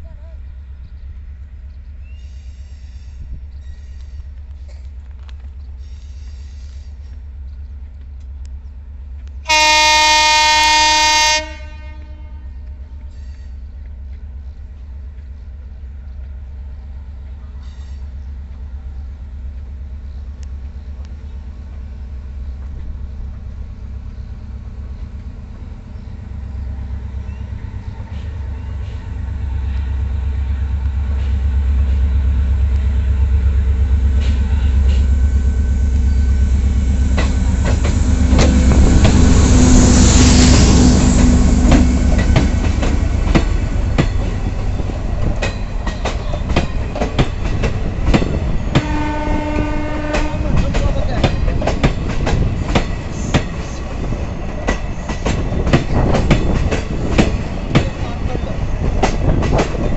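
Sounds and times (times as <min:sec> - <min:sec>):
diesel train drone: 0:00.0 - 0:59.9
train wheels clicking over joints: 0:36.0 - 0:39.6, 0:40.5 - 0:59.9.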